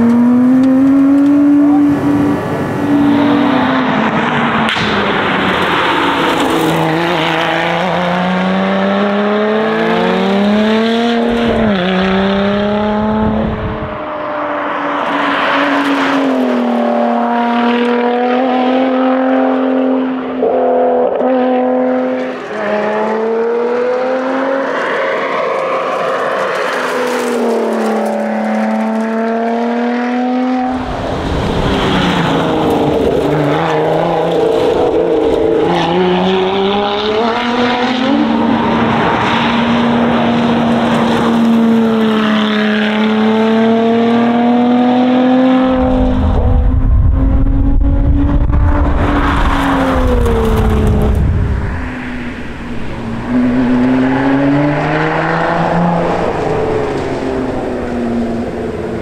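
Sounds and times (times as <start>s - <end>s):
car engine revving: 0.0s - 59.0s
deeper rumble: 45.7s - 52.9s.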